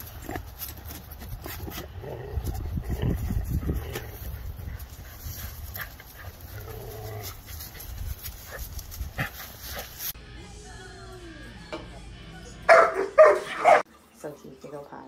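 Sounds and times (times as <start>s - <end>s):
dogs panting: 0.0s - 10.2s
dogs scuffling in dry leaves: 0.0s - 10.2s.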